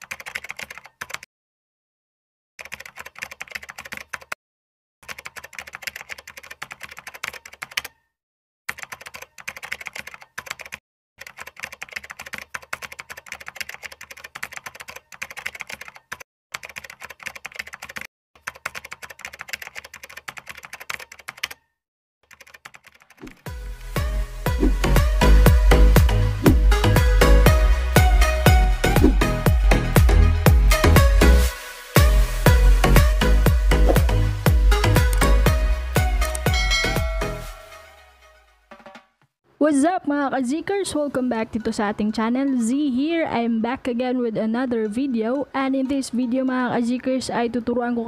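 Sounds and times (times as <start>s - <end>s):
music: 23.4s - 39.2s.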